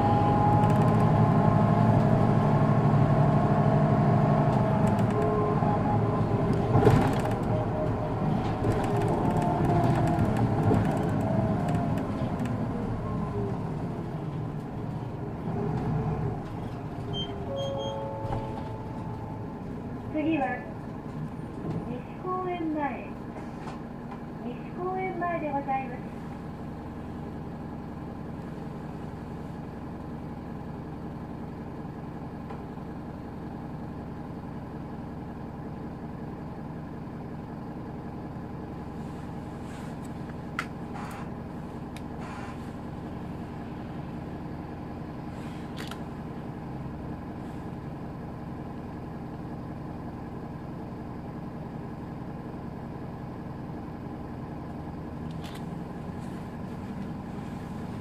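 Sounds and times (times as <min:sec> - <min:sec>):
bus diesel engine humming: 0:00.0 - 0:58.0
sharp clicks: 0:04.8 - 0:05.3, 0:08.6 - 0:12.6.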